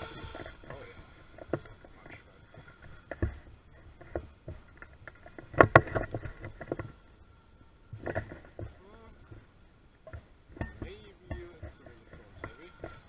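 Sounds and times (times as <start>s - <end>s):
distant model boat motor whine: 0.0s - 4.1s
knocks and rustles near microphone: 0.0s - 7.0s, 7.9s - 13.0s.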